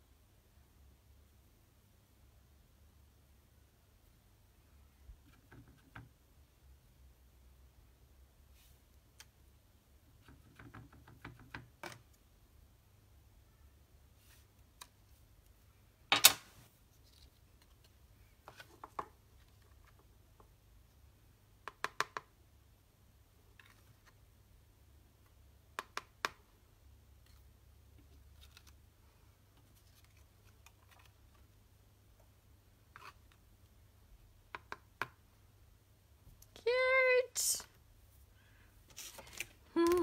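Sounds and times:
paper-craft supplies clicking: 39.0 - 40.0.

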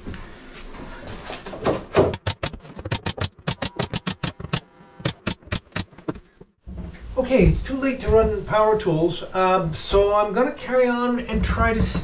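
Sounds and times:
rapid sharp clicks: 2.2 - 6.1.

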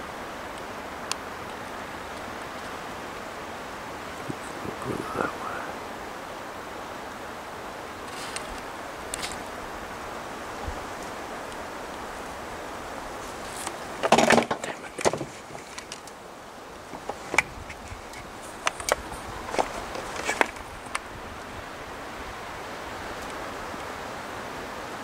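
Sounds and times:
steady outdoor hiss: 0.0 - 25.0
dry leaves and twigs crackling: 8.0 - 9.9, 16.8 - 21.1.

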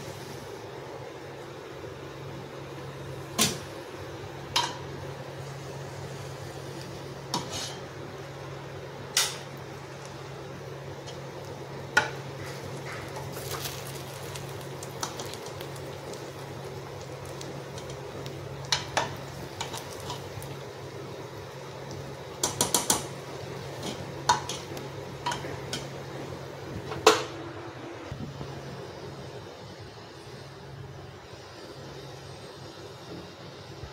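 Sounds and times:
steady low hum: 0.0 - 33.9
ladle clinking and scraping a pot: 7.3 - 7.9.

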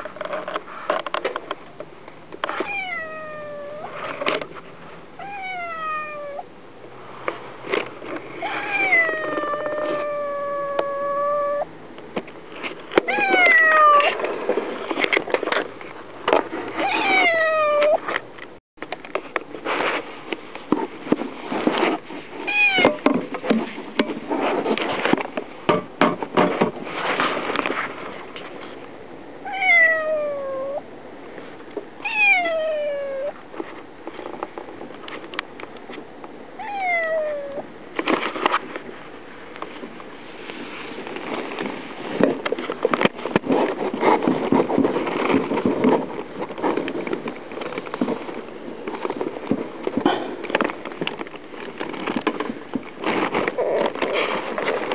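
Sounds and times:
kitten meowing: 2.6 - 4.0, 5.2 - 6.4, 8.4 - 11.7, 13.1 - 14.1, 16.8 - 18.0, 29.5 - 30.8, 32.0 - 33.3, 36.6 - 37.6.

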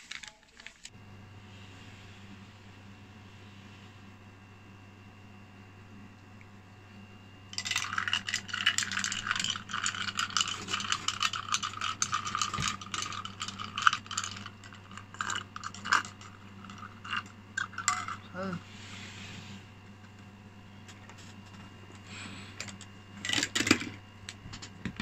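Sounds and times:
ice cubes clinking in a glass: 7.6 - 18.2.

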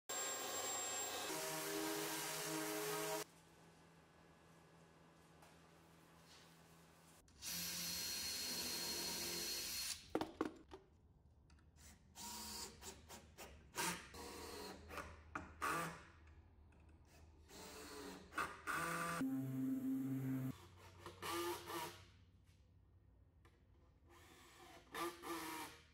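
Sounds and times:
power tool running steadily: 0.1 - 3.2.

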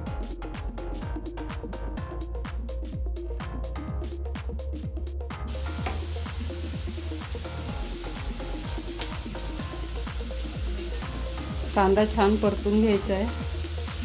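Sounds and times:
background music with steady beat: 0.0 - 14.0
onions sizzling in hot oil: 5.5 - 14.0.

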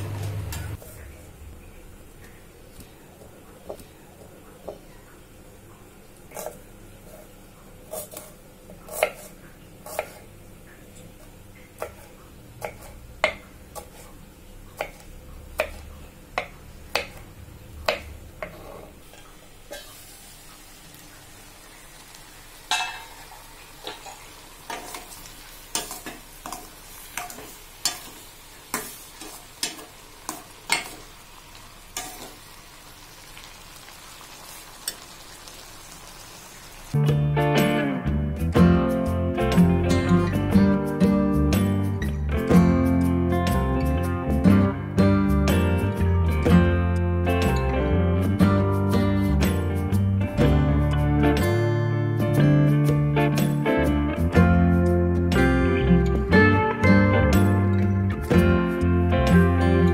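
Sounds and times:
water bubbling in a pan: 17.9 - 37.0.

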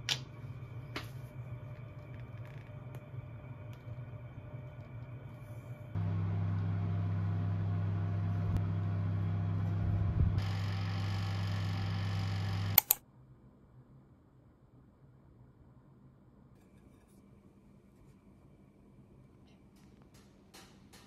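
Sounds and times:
toaster oven humming: 0.1 - 13.0.

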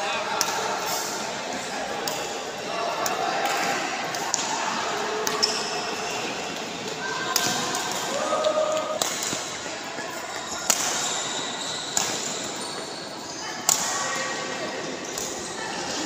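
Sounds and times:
background voices in a hall: 0.0 - 16.0
racket hitting shuttlecock: 8.9 - 9.5, 10.6 - 11.1.

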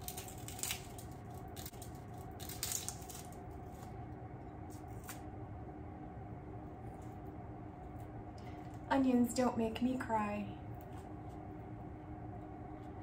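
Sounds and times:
onion skin crackling: 0.0 - 4.0, 4.6 - 5.3
faint hum: 0.0 - 13.0.

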